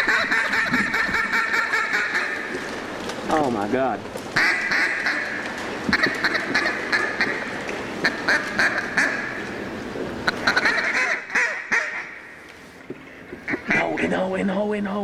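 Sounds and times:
ducks quacking: 0:00.0 - 0:02.7, 0:04.4 - 0:09.6, 0:10.2 - 0:12.4, 0:13.1 - 0:14.3.

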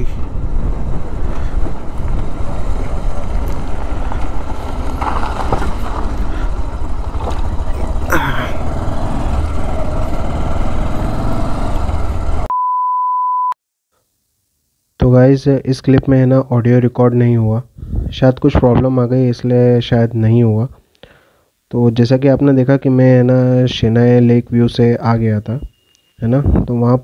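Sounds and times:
wind buffeting microphone: 0:00.0 - 0:08.1, 0:17.8 - 0:18.8
motorcycle riding: 0:00.0 - 0:12.5
test-tone beep: 0:12.5 - 0:13.6, 0:25.6 - 0:26.2.

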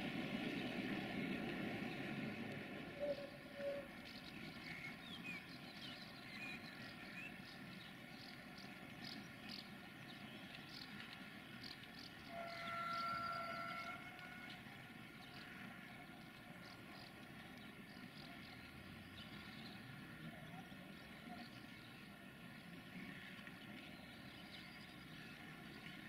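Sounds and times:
distant freight train rumbling: 0:00.0 - 0:05.7, 0:12.1 - 0:17.9
train horn: 0:03.0 - 0:03.9, 0:12.2 - 0:14.8.

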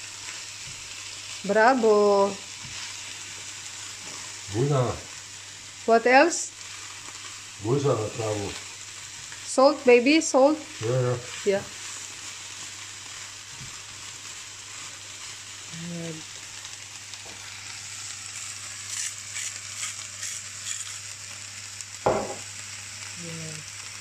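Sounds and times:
potatoes sizzling in a frying pan: 0:00.0 - 0:24.0
sharp knock: 0:22.1 - 0:22.4.

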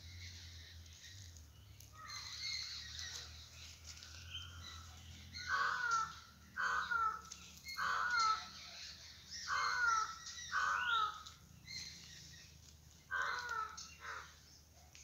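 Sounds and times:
crow cawing: 0:05.4 - 0:08.5, 0:09.5 - 0:11.2, 0:13.1 - 0:14.4.

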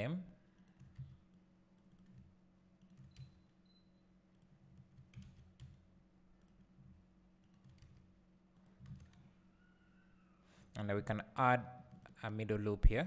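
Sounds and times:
keyboard and mouse clicks: 0:01.8 - 0:03.4, 0:04.3 - 0:05.8, 0:07.4 - 0:09.3.

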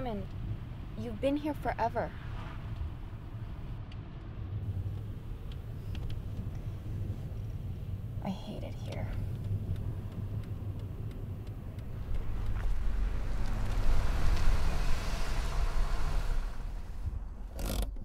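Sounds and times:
car rumble inside cabin: 0:02.7 - 0:18.0
rushing noise: 0:09.8 - 0:17.5.

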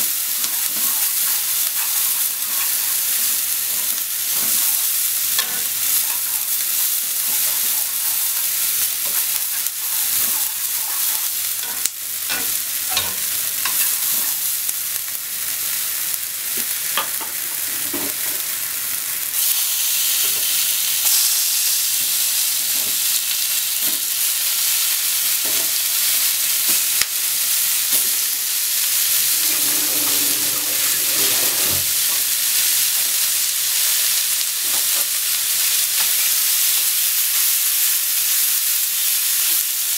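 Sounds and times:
onion sizzling in oil: 0:00.0 - 0:39.9
chopsticks clicking and scraping pan: 0:00.4 - 0:04.7, 0:07.2 - 0:14.4.

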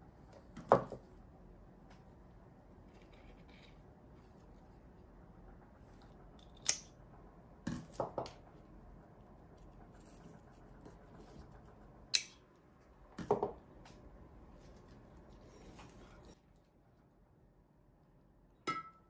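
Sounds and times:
scissors snipping stems: 0:06.6 - 0:07.0.

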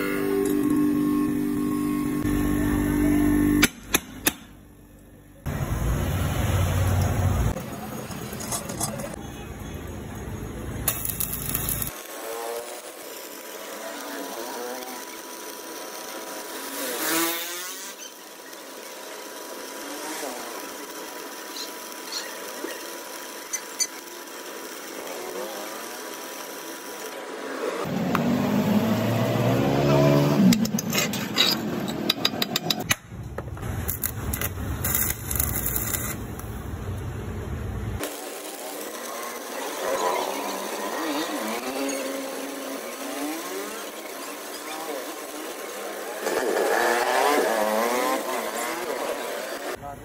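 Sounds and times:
steady rough noise: 0:09.8 - 0:28.4, 0:33.4 - 0:50.0
welding arc crackling and sizzling: 0:10.0 - 0:28.3, 0:32.2 - 0:49.8.

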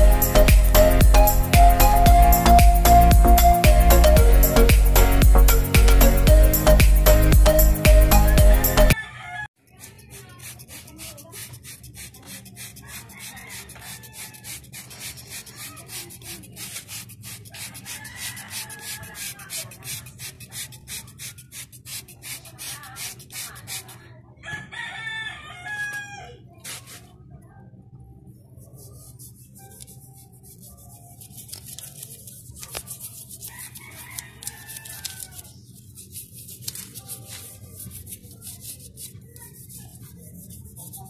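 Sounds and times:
rooster crowing: 0:09.0 - 0:09.6, 0:12.8 - 0:14.6, 0:17.8 - 0:19.7, 0:24.4 - 0:26.4, 0:33.5 - 0:35.6
brush scrubbing metal: 0:09.6 - 0:24.1, 0:26.6 - 0:27.1, 0:28.6 - 0:41.0.

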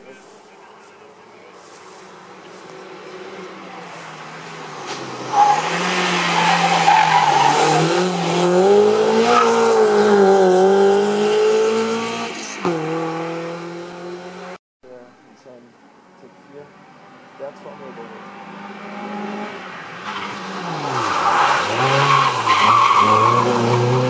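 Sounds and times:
race car engine revving: 0:04.6 - 0:14.6, 0:17.7 - 0:24.0.

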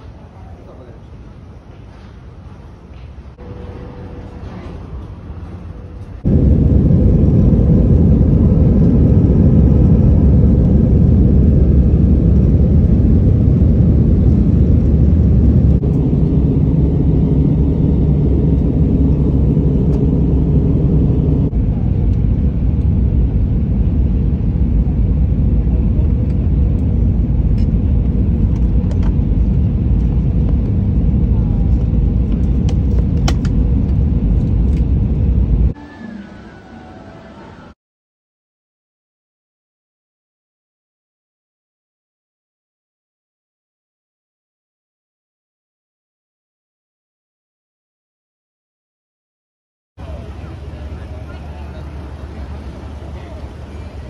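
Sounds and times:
jet cabin engine rumble: 0:00.0 - 0:35.8, 0:50.0 - 0:54.0
terminal ambience: 0:03.3 - 0:37.8.

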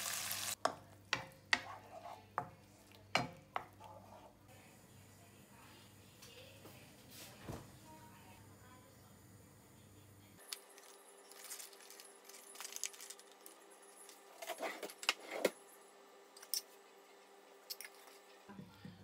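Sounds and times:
plastic tray crinkling: 0:10.6 - 0:13.5.

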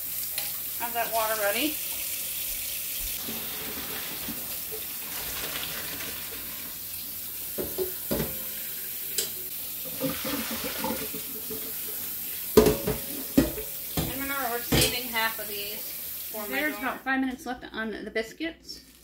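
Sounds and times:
tap water running into sink: 0:01.3 - 0:16.8
pasta water poured off: 0:03.1 - 0:08.9, 0:09.5 - 0:13.3
pot knocking against sink: 0:07.6 - 0:08.5, 0:12.5 - 0:15.0.

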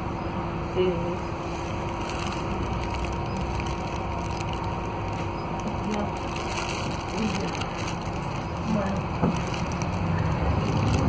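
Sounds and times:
bus diesel engine drone: 0:00.0 - 0:11.0
rattles and creaks of bus body: 0:03.9 - 0:11.0.

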